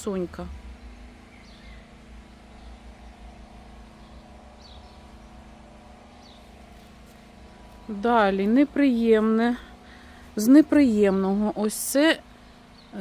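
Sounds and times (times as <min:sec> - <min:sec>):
faint hum: 0:00.0 - 0:13.0
steady low rumble: 0:00.0 - 0:13.0
faint bird chirps: 0:00.8 - 0:05.4.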